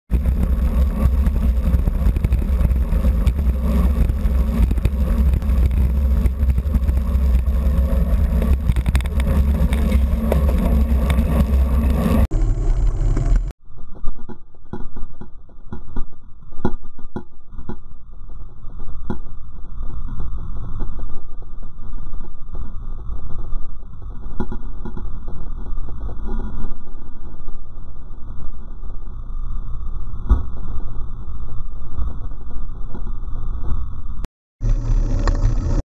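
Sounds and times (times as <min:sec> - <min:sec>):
wind buffeting microphone: 0:00.1 - 0:12.3.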